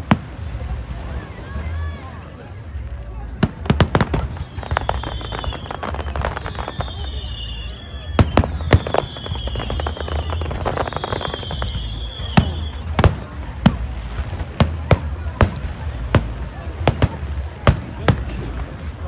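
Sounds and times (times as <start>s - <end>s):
fireworks bangs and crackles: 0.0s - 19.0s
high falling whistle: 4.6s - 12.8s.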